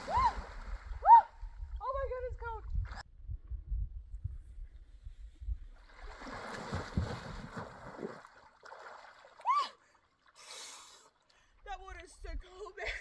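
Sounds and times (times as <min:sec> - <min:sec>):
water splashing: 0:00.0 - 0:01.9, 0:05.8 - 0:11.6.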